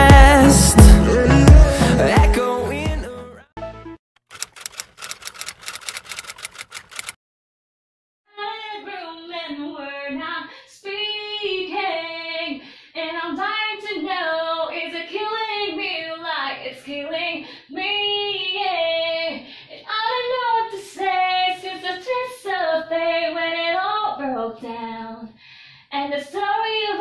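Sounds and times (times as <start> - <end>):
girl singing unaccompanied: 8.3 - 27.0.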